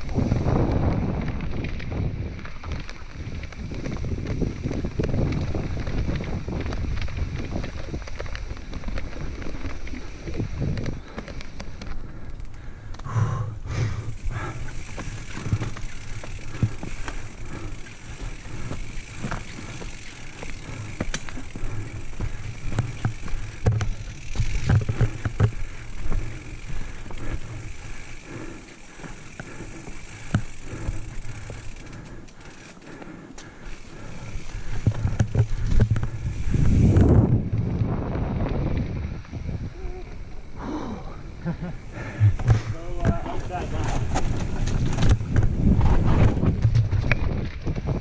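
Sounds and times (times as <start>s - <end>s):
bike rattling and knocking: 0.0s - 48.0s
tyres crunching over stones: 0.1s - 12.6s.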